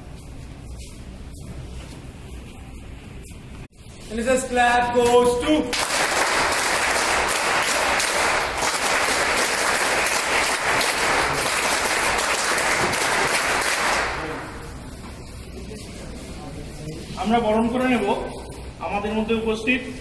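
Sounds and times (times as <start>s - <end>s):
people clapping: 5.0s - 14.8s.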